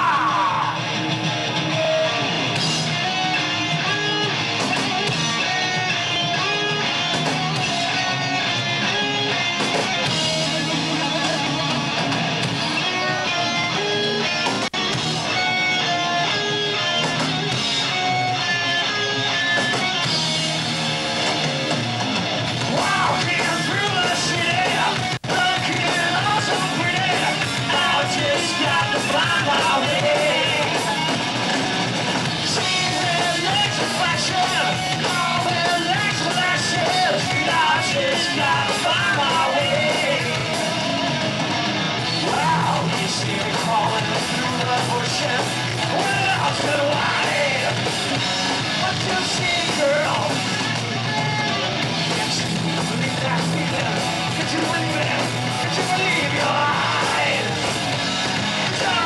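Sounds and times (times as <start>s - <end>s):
man yelling and singing: 0.0s - 0.9s, 22.7s - 31.1s, 32.4s - 40.7s, 42.2s - 47.8s, 48.8s - 57.6s, 58.7s - 59.0s
heavy metal band playing: 0.0s - 59.0s.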